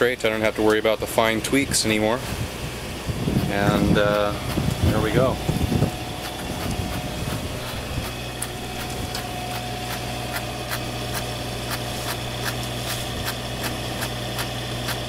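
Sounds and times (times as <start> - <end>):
mechanical engine hum: 0.0 - 15.0
light regular ticking: 3.4 - 15.0.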